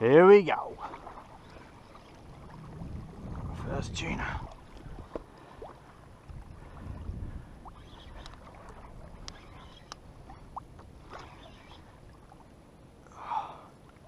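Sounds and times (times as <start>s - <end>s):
water lapping against kayak hull: 0.2s - 14.0s
light clicks: 8.1s - 8.4s, 9.2s - 10.0s.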